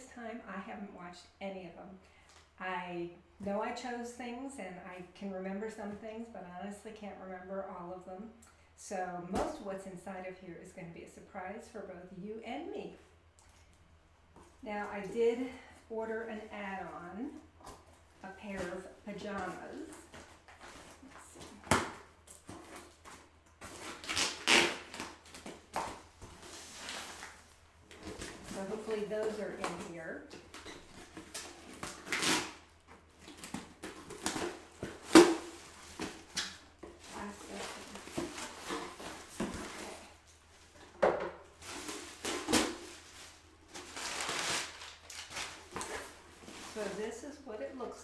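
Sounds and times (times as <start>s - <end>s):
scraping and rustling of tape: 17.6s - 48.0s
plastic wrapping crinkling: 41.5s - 47.2s.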